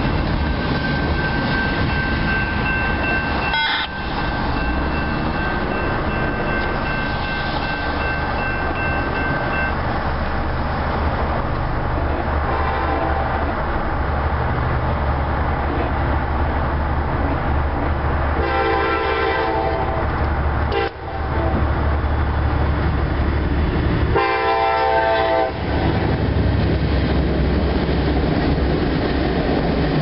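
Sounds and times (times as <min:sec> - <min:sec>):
railroad crossing bell ringing: 0:00.0 - 0:10.7
faint train horn: 0:03.5 - 0:04.2, 0:12.0 - 0:13.6, 0:18.4 - 0:21.7, 0:24.1 - 0:26.0.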